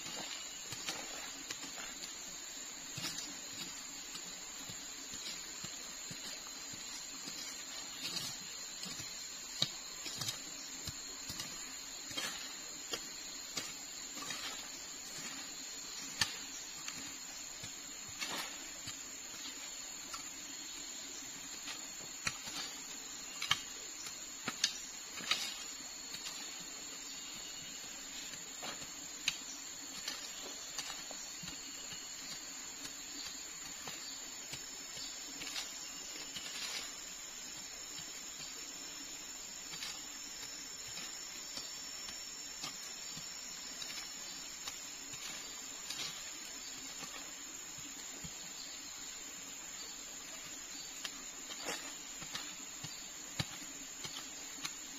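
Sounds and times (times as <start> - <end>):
hoe chopping into soil: 7.2 - 20.3, 39.6 - 47.3, 51.0 - 54.9.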